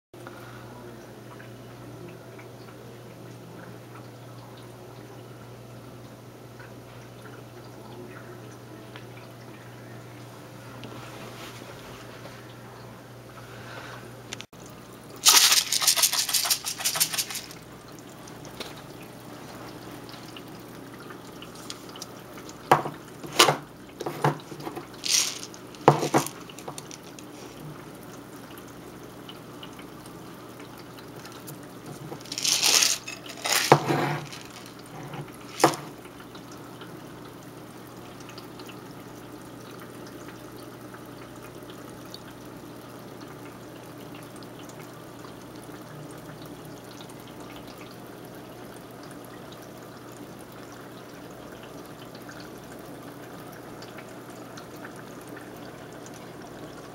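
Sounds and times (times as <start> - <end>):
water splashing in aquarium: 14.5 - 56.9.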